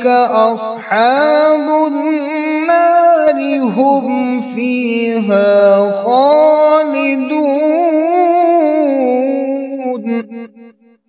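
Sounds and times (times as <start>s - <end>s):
man chanting melodic recitation: 0.0s - 10.7s.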